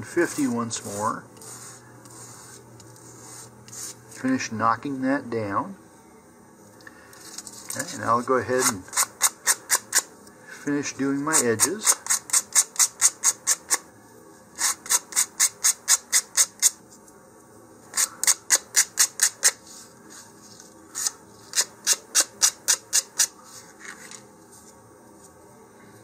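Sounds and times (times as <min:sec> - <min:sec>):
sandpaper rubbing on wood: 0:00.1 - 0:04.0.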